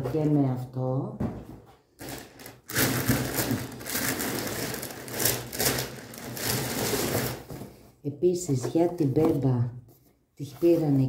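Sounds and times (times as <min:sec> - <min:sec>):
packaging crinkling: 0:02.0 - 0:07.6.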